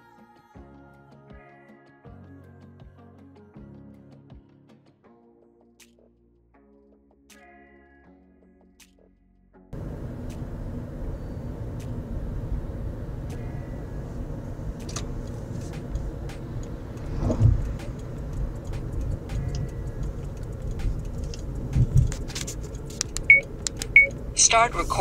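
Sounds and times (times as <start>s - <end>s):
car road and engine rumble: 9.7s - 25.0s
faint clicks and rattles: 14.2s - 24.2s.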